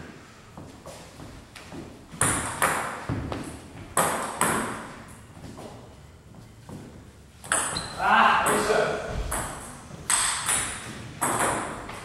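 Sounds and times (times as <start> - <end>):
ping pong ball clicking off paddles: 4.0 - 4.9, 7.4 - 12.0.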